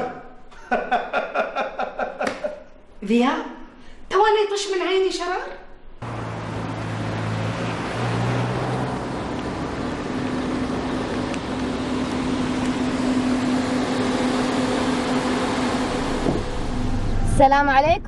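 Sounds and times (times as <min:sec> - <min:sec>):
cars driving past: 0:06.0 - 0:17.4
car engine humming close: 0:06.0 - 0:18.0.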